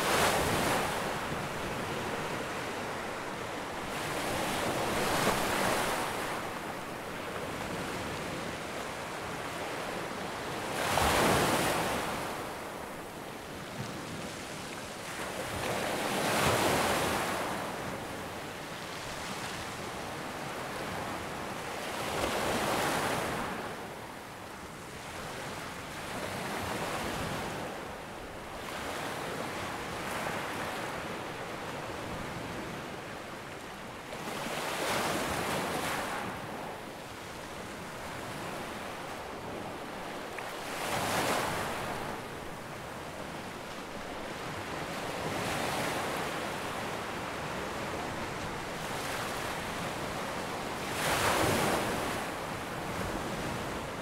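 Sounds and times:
waves breaking on shore: 0.0 - 21.2, 34.1 - 54.0.

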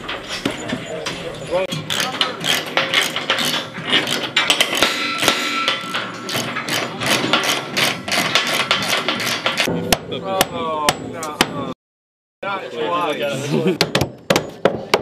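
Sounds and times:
voices: 0.0 - 3.5
hammer striking wooden decking: 1.8 - 11.7, 13.8 - 15.0.

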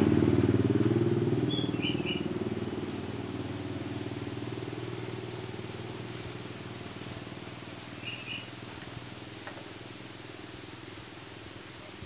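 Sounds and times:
motorcycle engine running: 0.0 - 11.4
bird chirp: 1.4 - 2.3, 8.0 - 8.5.

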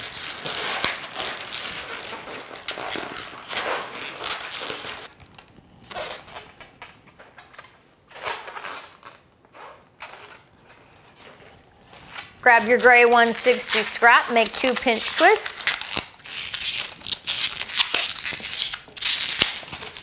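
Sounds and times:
balloons rubbing together: 0.0 - 5.2.

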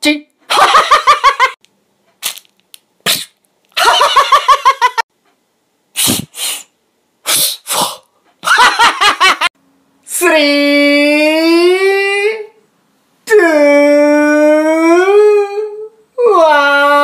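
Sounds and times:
foot pump air puffs: 6.0 - 6.7, 7.3 - 8.0.

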